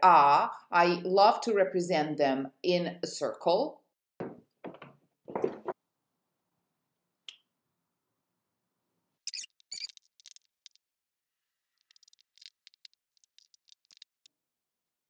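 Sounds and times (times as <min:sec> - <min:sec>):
marker pen squeaking on paper: 0:09.3 - 0:10.8, 0:11.8 - 0:14.3.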